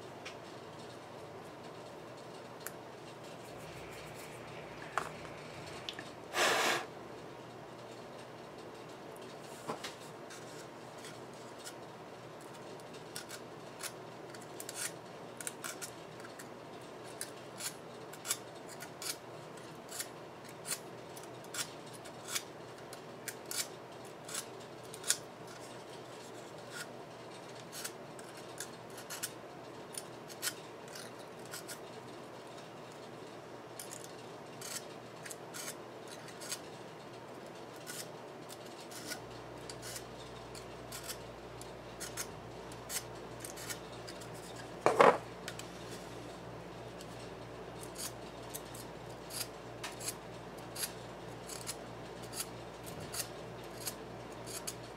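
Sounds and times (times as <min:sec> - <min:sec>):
wire being scraped: 0:03.2 - 0:06.9, 0:50.8 - 0:54.8.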